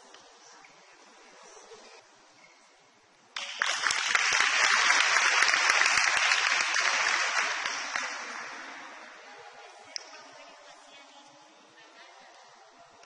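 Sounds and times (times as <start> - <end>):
single sharp clap: 3.4 - 8.5
crowd applause: 3.4 - 9.1.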